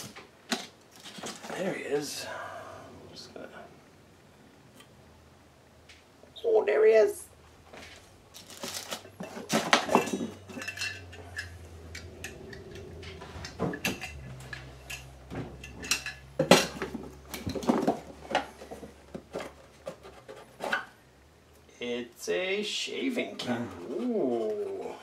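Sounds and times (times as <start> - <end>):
small objects clinking and rattling: 8.3 - 18.0.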